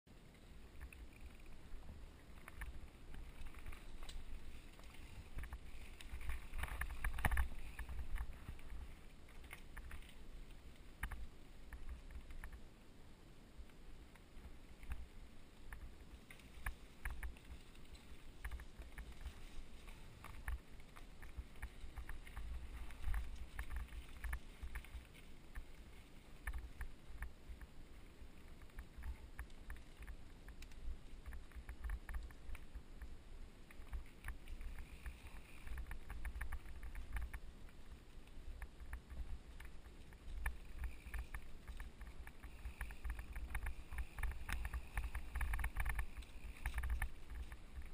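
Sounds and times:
bike clattering and clicking: 38.6s - 47.9s.

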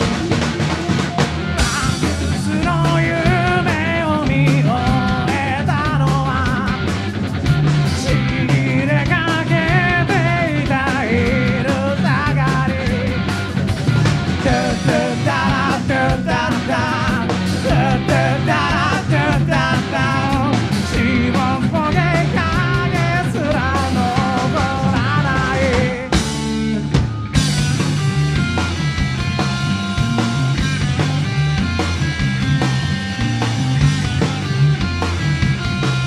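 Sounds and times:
bass guitar: 0.0s - 36.0s
distorted electric guitars: 0.0s - 36.0s
drums: 0.0s - 36.0s
live rock band: 0.0s - 36.0s
man singing: 1.6s - 6.8s, 7.9s - 13.2s, 14.4s - 26.2s.

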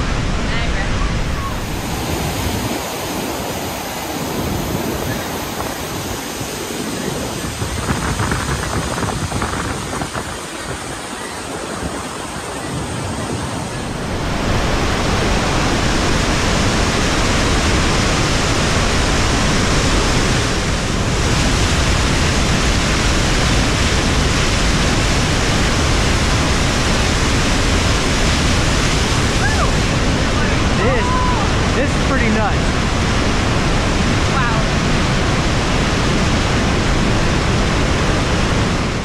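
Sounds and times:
waterfall crashing onto rocks: 14.0s - 39.0s.

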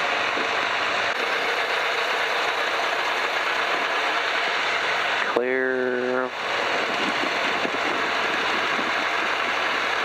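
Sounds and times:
propeller plane engine droning: 0.0s - 10.0s.

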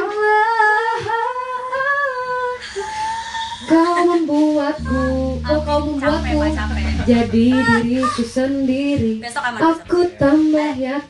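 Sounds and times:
low accompanying note: 4.8s - 9.0s.

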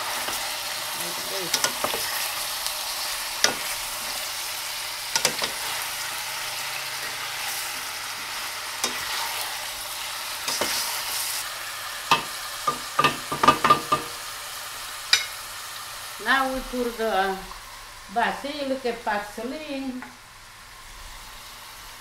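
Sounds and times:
chicken and onions sizzling: 0.0s - 22.0s
wooden utensils knocking on pan: 12.1s - 14.2s.

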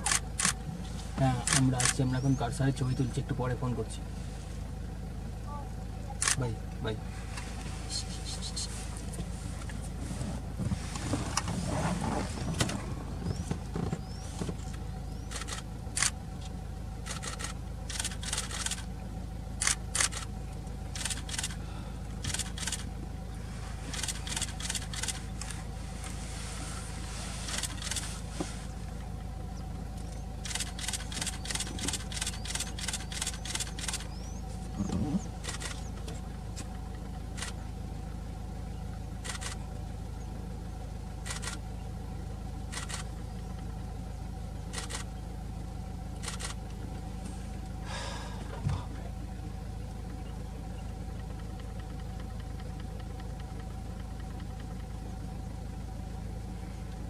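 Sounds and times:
steady low hum: 0.0s - 57.0s
sharp quick clicks: 30.4s - 34.1s.

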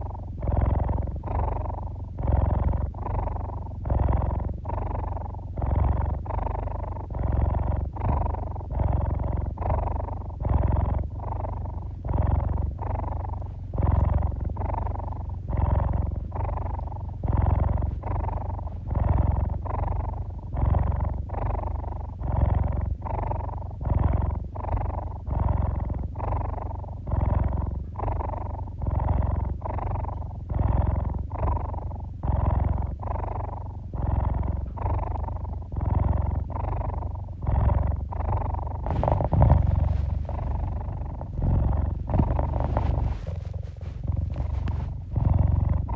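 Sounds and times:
cat purring: 0.0s - 45.9s
loud rustling: 38.9s - 45.4s.

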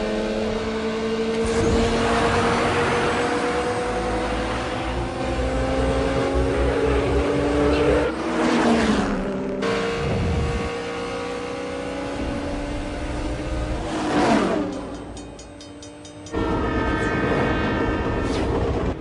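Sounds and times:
race car engines passing: 0.0s - 18.1s
train horn: 16.3s - 18.8s.

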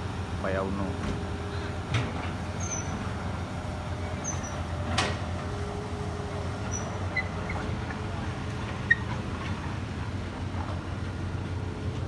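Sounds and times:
heavy diesel engines idling: 0.0s - 12.0s.

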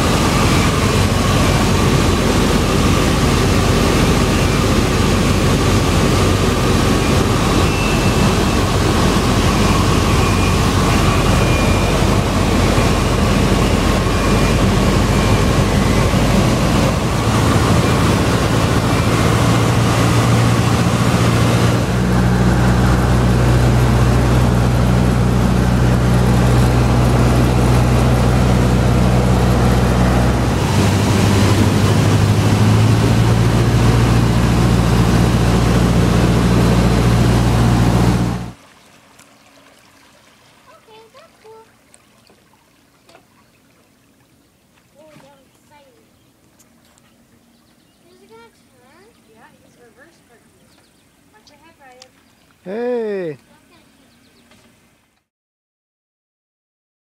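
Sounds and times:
plane engine drone: 0.0s - 38.6s
rushing air: 0.0s - 38.6s.

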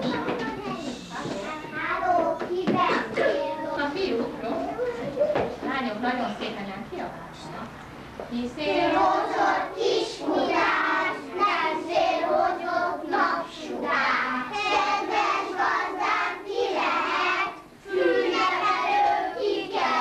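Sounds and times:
young children singing: 0.0s - 3.8s, 8.6s - 20.0s.

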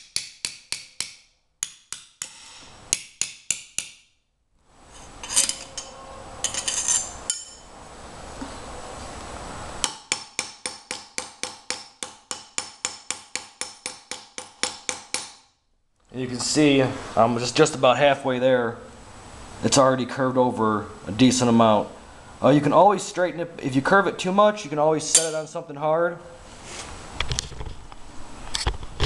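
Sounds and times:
hammer striking steel plate: 0.0s - 4.1s, 9.8s - 15.5s, 25.1s - 25.5s.

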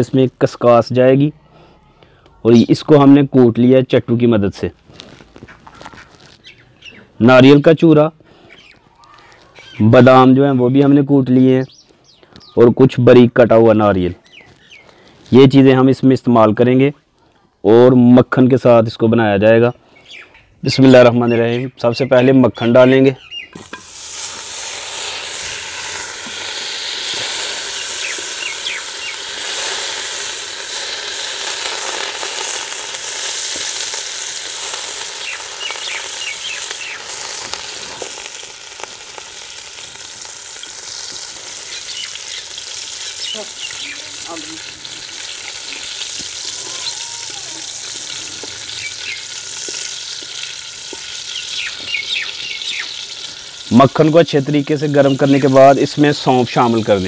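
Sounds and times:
butter sizzling in a wok: 23.5s - 57.0s.

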